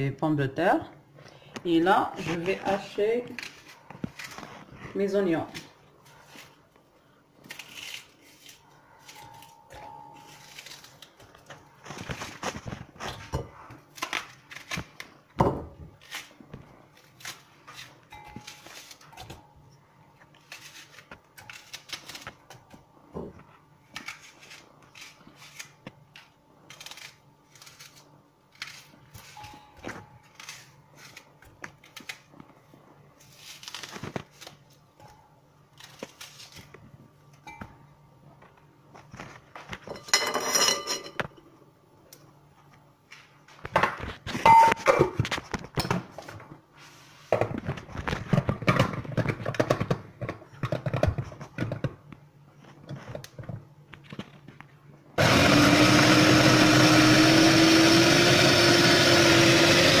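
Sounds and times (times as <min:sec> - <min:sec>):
onions clattering in glass bowl: 0:39.8 - 0:41.2
food processor motor: 0:55.2 - 1:00.0.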